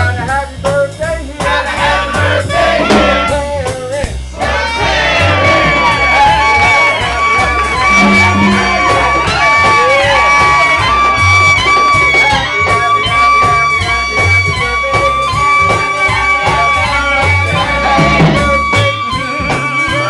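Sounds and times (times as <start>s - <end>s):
upright bass line: 0.0s - 20.0s
trumpet holding high note: 2.2s - 3.5s, 4.7s - 12.6s
steady beat: 2.2s - 19.3s.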